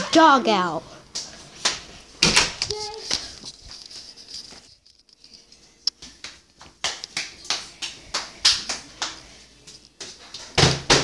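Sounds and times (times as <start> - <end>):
slaps on tile floor: 1.1 - 3.3, 5.9 - 11.0.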